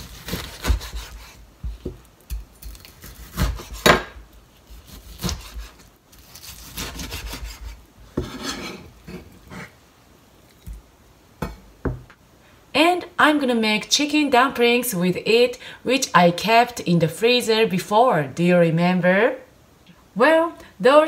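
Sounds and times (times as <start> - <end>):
knife scraping strokes: 0.0 - 1.4, 2.8 - 4.0, 4.6 - 9.8
knife knocking on cutting board: 11.4 - 12.1.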